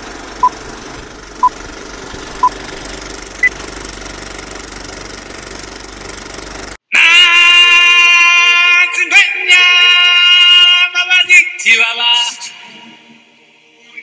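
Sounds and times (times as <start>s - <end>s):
steady mechanical rumble: 0.0s - 6.8s.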